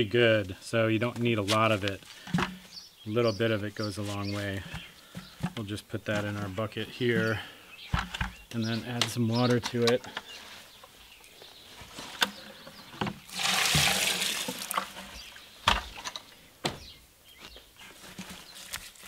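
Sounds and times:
water pouring into bucket: 13.3s - 15.0s.

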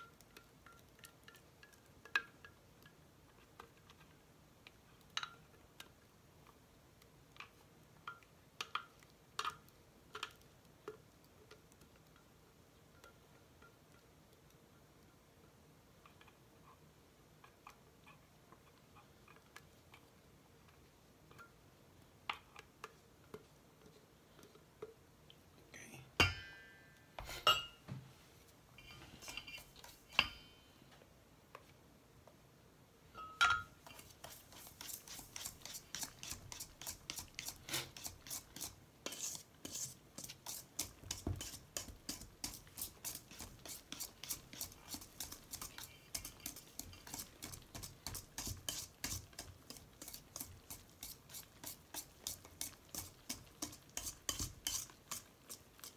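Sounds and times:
kitchen utensils clinking: 26.2s - 27.9s, 28.8s - 30.7s
whisk beating batter in metal bowl: 33.8s - 55.9s.

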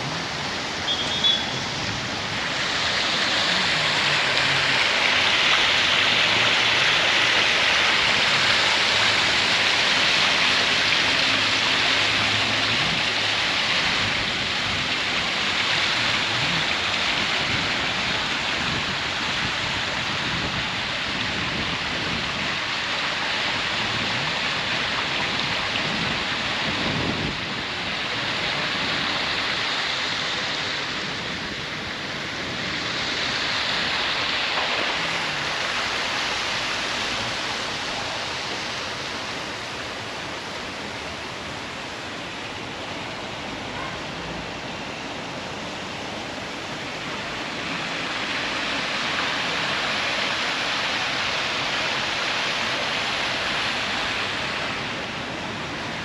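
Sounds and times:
splashing water: 0.0s - 30.9s, 32.8s - 39.6s.

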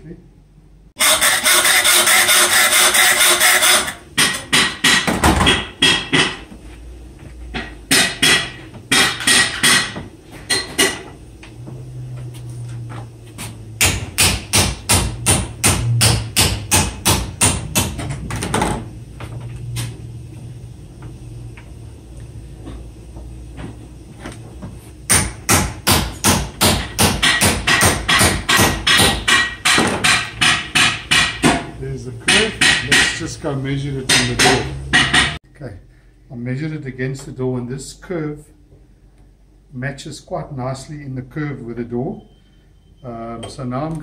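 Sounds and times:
loud cutting noise: 1.0s - 4.0s.

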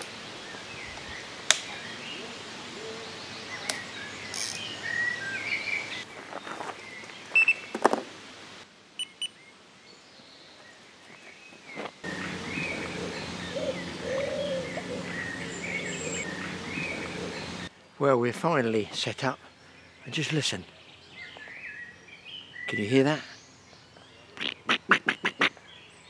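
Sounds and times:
small birds chirping: 9.0s - 26.0s.

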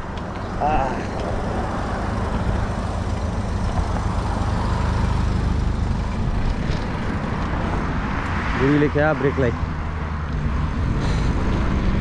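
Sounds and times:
bicycle road noise: 0.0s - 12.0s
road traffic: 0.0s - 12.0s
wind rushing on microphone: 6.1s - 12.0s.

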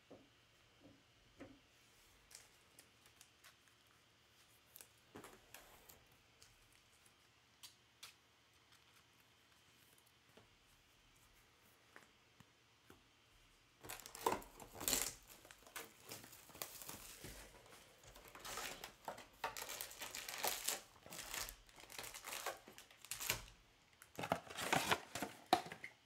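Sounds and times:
card wrappers tearing and crinkling: 13.8s - 25.8s.

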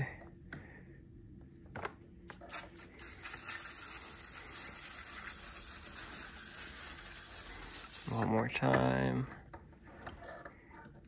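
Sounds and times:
spray hissing: 2.5s - 8.2s.

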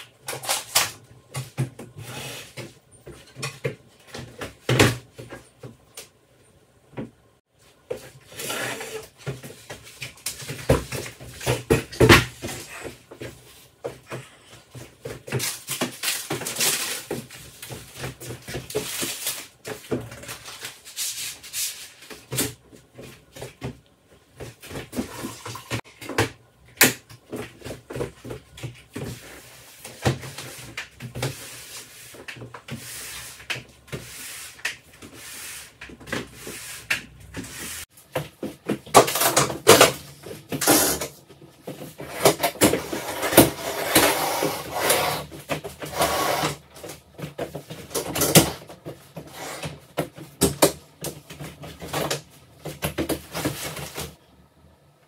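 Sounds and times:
rubbing and scraping noises: 7.5s - 23.6s, 27.3s - 54.2s.

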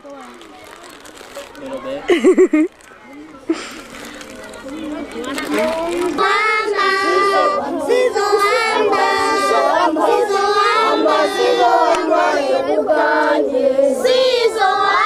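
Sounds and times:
children's choir singing: 6.1s - 15.0s.

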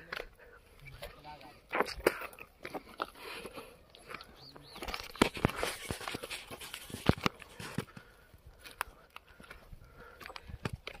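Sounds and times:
footsteps crunching on gravel: 1.7s - 11.0s
dry grass rustling: 4.6s - 11.0s.

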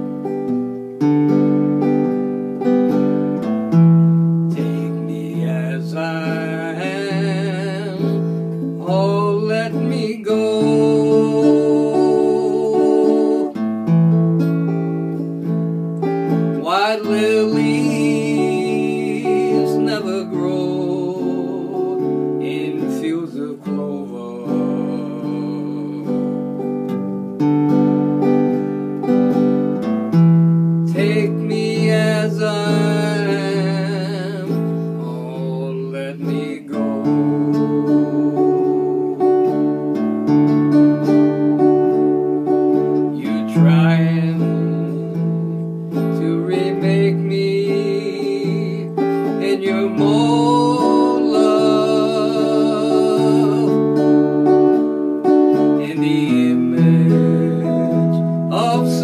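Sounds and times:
guitar chords: 0.0s - 59.0s
man singing country song: 4.5s - 13.9s, 16.3s - 27.0s, 30.8s - 40.1s, 40.7s - 59.0s.

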